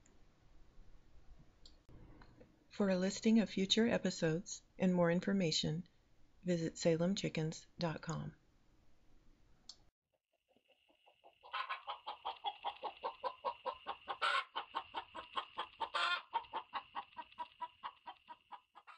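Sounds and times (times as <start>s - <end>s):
hens clucking: 10.6s - 18.9s
hen squawks: 11.4s - 18.9s.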